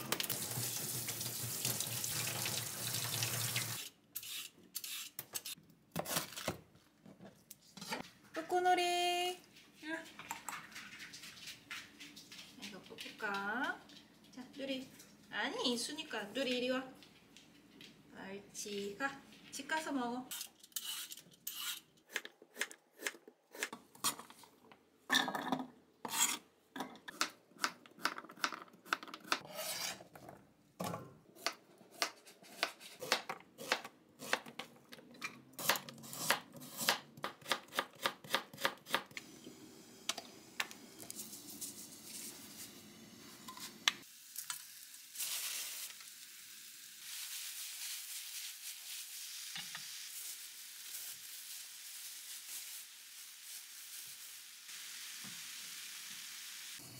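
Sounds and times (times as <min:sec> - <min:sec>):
food sizzling in hot pan: 0:39.4 - 0:56.9.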